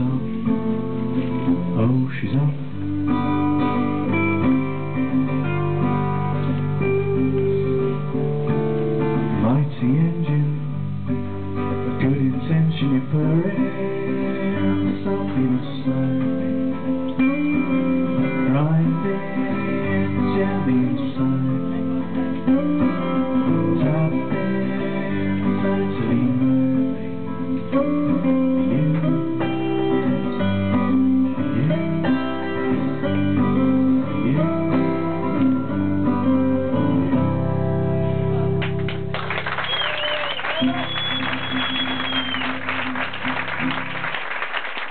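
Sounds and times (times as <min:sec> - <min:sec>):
man singing: 0:00.0 - 0:03.4, 0:09.2 - 0:10.9, 0:11.8 - 0:37.6
acoustic guitar: 0:00.0 - 0:44.9
applause: 0:38.6 - 0:44.9
whistle: 0:39.5 - 0:43.0.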